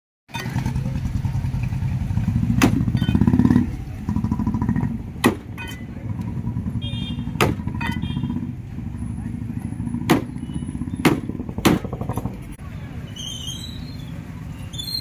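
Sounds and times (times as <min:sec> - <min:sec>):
motorcycle engine idling: 0:00.3 - 0:09.6
sharp knocks: 0:05.2 - 0:05.8, 0:07.4 - 0:08.0, 0:10.1 - 0:10.4, 0:11.0 - 0:12.4.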